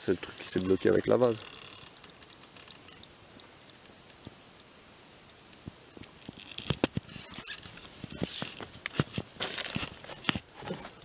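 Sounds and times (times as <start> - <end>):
fishing reel clicks and rustles: 0.0 - 3.1, 6.0 - 11.0.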